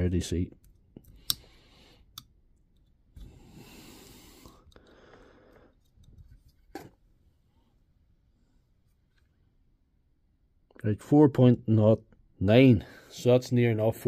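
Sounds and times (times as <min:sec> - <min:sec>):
test probes clicking on metal: 0:00.6 - 0:02.9.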